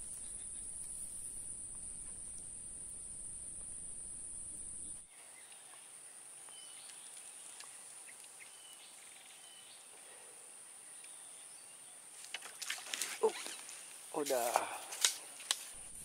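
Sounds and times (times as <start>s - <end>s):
bird chirps: 0.0s - 2.6s
insect drone: 0.0s - 16.0s.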